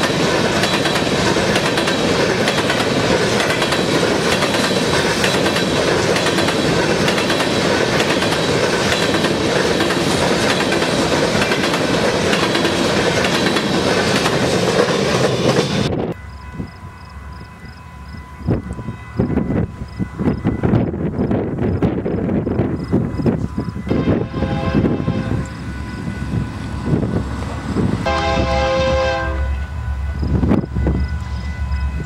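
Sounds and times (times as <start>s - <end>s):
wheels clicking over rail joints: 0.0s - 15.9s
freight train rumbling past: 0.0s - 32.0s.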